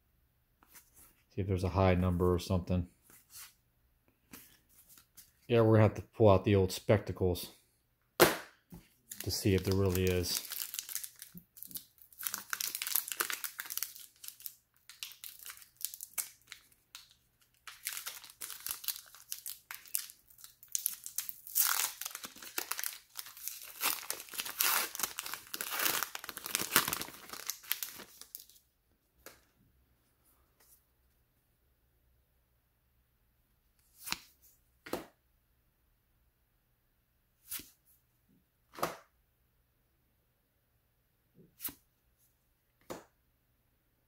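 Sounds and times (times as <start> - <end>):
wrapper tearing and crinkling: 9.1 - 28.6.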